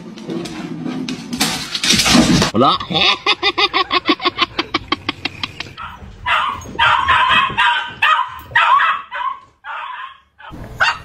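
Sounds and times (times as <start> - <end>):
dog barking and yipping: 5.7 - 11.0.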